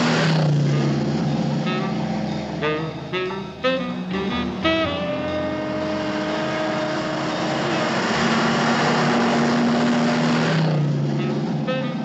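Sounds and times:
cartoon vehicle rushing past: 0:00.0 - 0:12.0
held low notes: 0:01.6 - 0:08.4.

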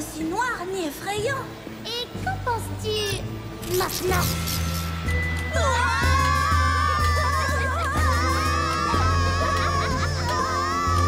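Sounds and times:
cartoon soundtrack music: 0:05.3 - 0:11.0.

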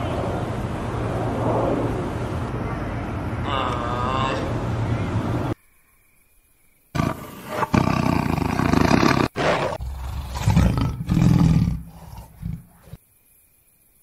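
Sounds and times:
tiger roaring: 0:07.0 - 0:13.0.

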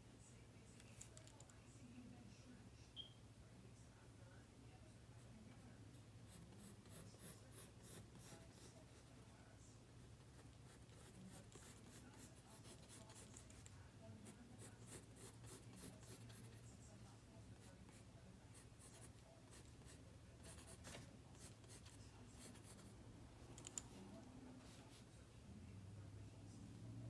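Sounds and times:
faint low hum: 0:00.0 - 0:27.0
pencil scratching on paper: 0:06.2 - 0:09.3, 0:10.2 - 0:16.7, 0:17.6 - 0:22.9.

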